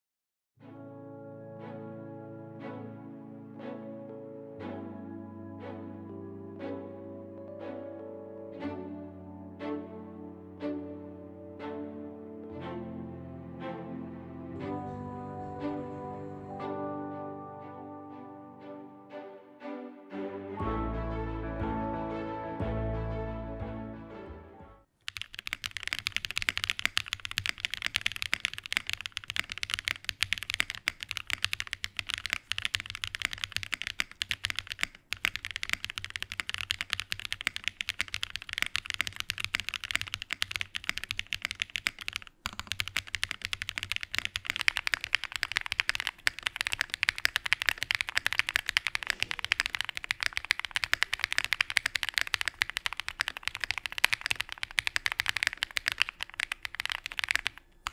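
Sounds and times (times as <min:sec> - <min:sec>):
mechanical keyboard typing: 0:25.0 - 0:57.9.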